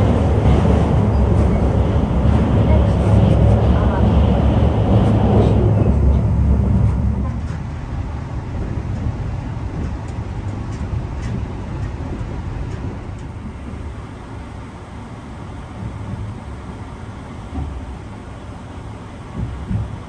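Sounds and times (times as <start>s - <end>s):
train running rumble: 0.0s - 20.0s.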